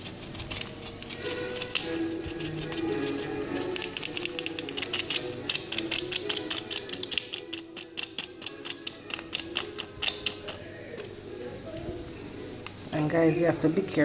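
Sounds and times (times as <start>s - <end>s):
plastic shaker rattling: 0.0s - 10.6s
background music: 0.0s - 14.0s.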